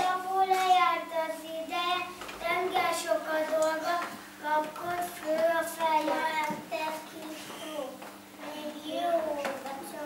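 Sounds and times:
young children singing: 0.0s - 7.8s.

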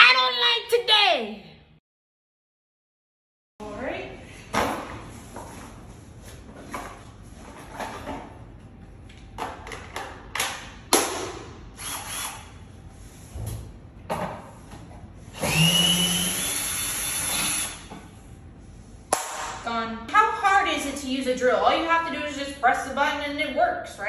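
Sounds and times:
cordless drill motor whine: 11.8s - 12.5s, 15.4s - 17.8s.

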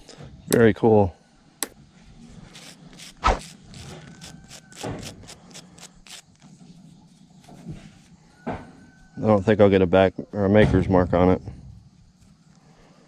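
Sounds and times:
brush scrubbing: 2.3s - 8.1s.

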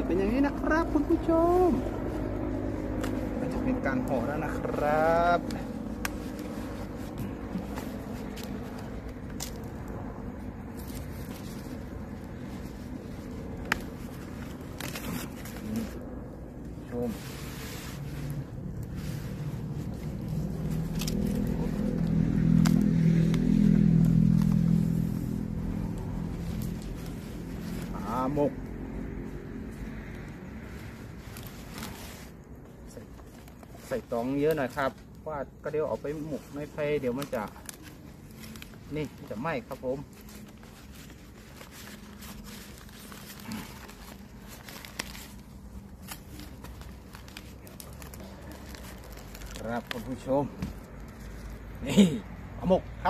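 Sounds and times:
vehicle engine running: 0.0s - 31.4s
banana leaves crackling: 0.0s - 53.0s.

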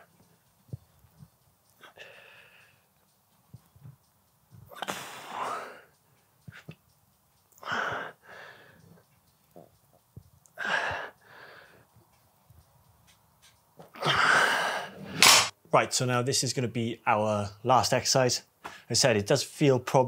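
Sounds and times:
man breathing hard: 1.8s - 2.8s, 7.6s - 9.0s, 10.6s - 11.9s.

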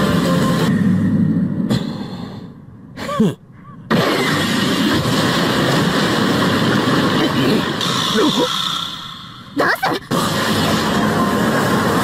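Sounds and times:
rushing noise: 3.9s - 12.0s.

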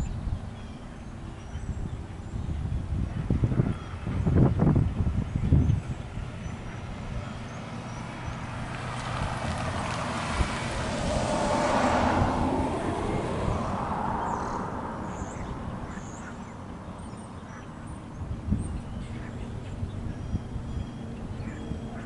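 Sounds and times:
car driving past: 6.7s - 17.3s.

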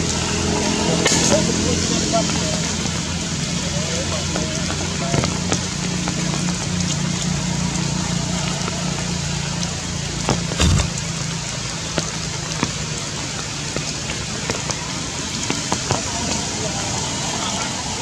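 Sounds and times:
rain hissing and pattering: 0.0s - 18.0s
thump: 10.6s - 10.9s.

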